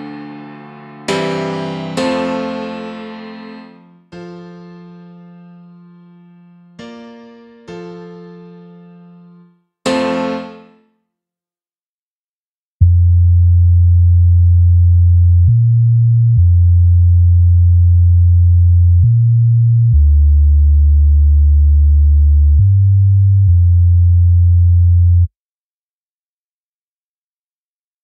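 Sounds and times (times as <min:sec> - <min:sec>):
synth bass line: 0:00.0 - 0:04.6.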